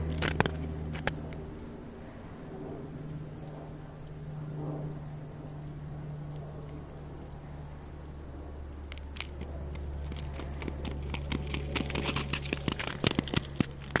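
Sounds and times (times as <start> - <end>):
low steady hum: 0.0 - 14.0
light metallic jingle: 9.2 - 14.0.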